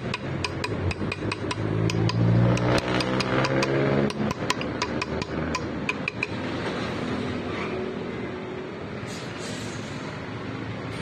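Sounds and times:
rapid light taps on metal: 0.0s - 6.4s.

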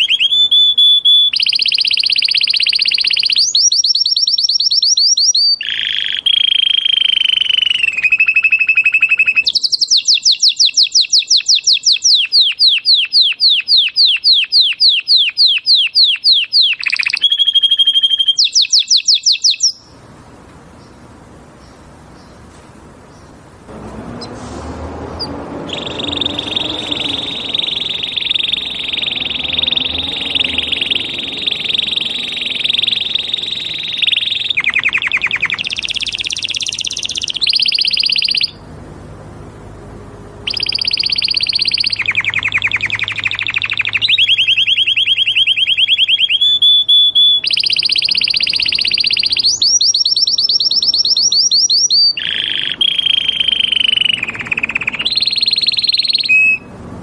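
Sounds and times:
canary singing trills: 0.0s - 23.5s, 24.1s - 57.0s.

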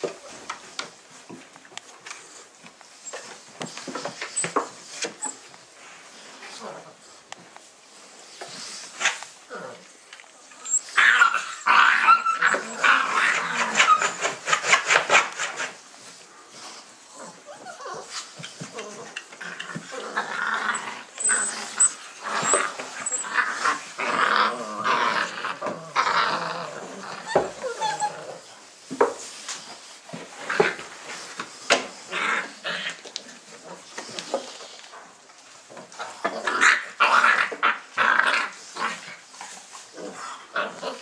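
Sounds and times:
puppies yelping and whining: 2.9s - 5.6s, 10.4s - 15.0s, 17.2s - 24.2s, 27.0s - 28.6s
high squeaks: 21.2s - 23.3s.

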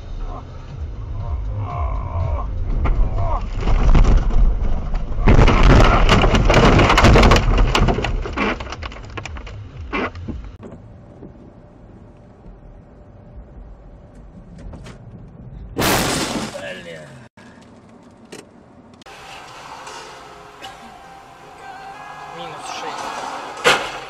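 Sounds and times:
low rumble: 0.0s - 15.8s
car crashing into deep snow: 15.8s - 16.8s.

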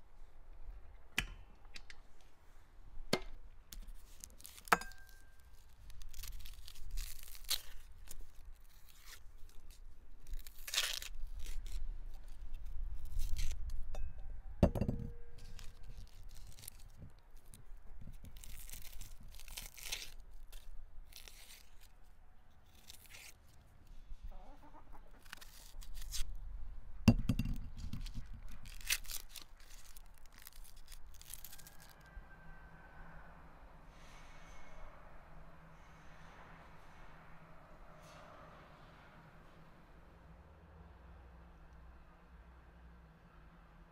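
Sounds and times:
onion skins crackling and tearing: 3.7s - 13.9s, 15.4s - 24.0s, 25.1s - 26.4s, 27.8s - 32.1s.

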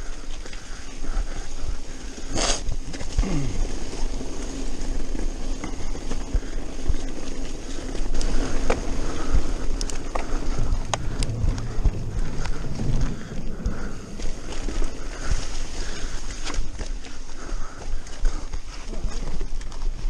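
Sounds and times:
bike tyres rumbling on dirt: 0.0s - 20.0s
wind on microphone: 8.0s - 16.7s.

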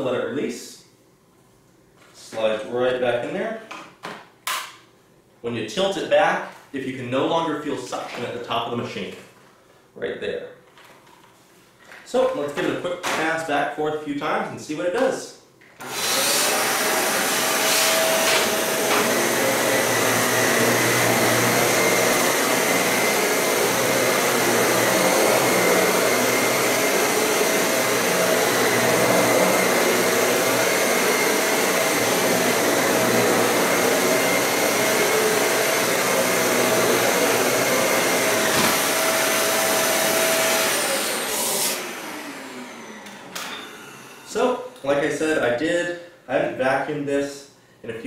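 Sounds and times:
vacuum cleaner motor whine: 15.8s - 44.5s.

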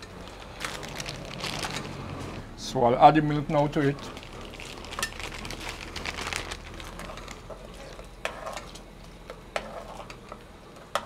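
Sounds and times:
metal spoon scraping a pot: 7.0s - 8.8s, 9.5s - 11.0s.

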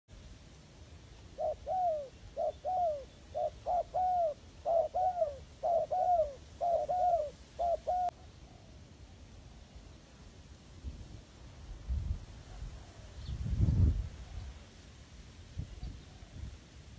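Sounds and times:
dove cooing: 1.3s - 8.8s.

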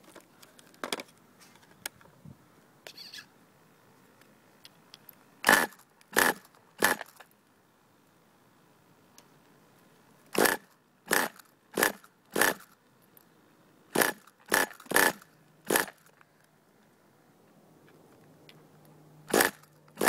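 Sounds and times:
engine pull-start cord yanked: 5.4s - 7.2s, 10.3s - 12.8s, 14.0s - 16.2s, 19.3s - 20.0s
engine turning over: 5.4s - 7.2s, 10.4s - 12.8s, 13.9s - 16.1s, 19.3s - 20.0s.

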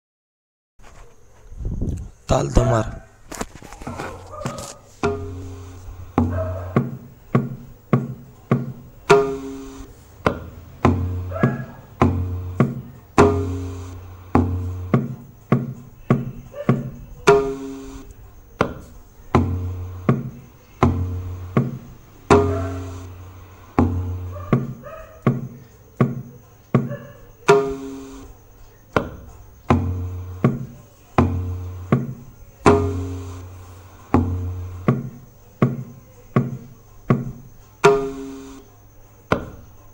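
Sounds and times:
deep ringing tabla bass strokes: 5.0s - 26.3s, 27.5s - 28.3s, 29.0s - 36.6s, 37.3s - 38.6s
sharp pitched tabla strokes: 5.0s - 26.3s, 27.5s - 28.3s, 29.0s - 38.7s.

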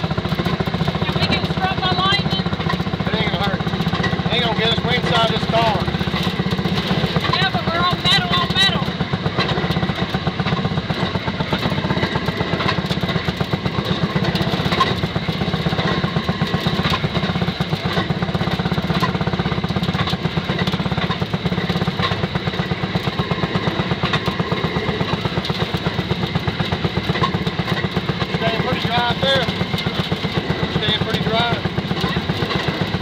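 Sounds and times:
small engine putt-putt: 0.0s - 33.0s.

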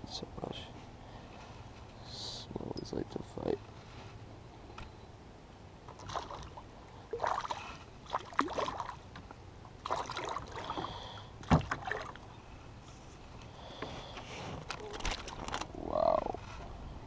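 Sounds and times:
fish splashing in water: 6.0s - 9.0s, 9.8s - 12.2s.

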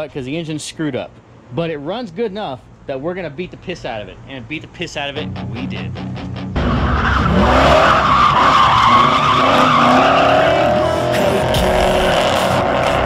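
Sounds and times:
car engine rumbling: 5.2s - 13.0s
tires squealing in a skid: 6.6s - 13.0s.

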